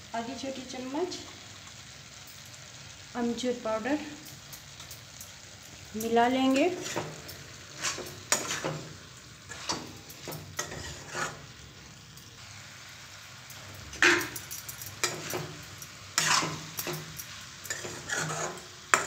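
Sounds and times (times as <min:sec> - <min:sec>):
vegetables sizzling: 0:00.0 - 0:19.0
spatula scraping a steel pan: 0:06.7 - 0:08.9, 0:09.5 - 0:11.5, 0:13.9 - 0:14.4, 0:16.2 - 0:17.0, 0:17.7 - 0:19.0.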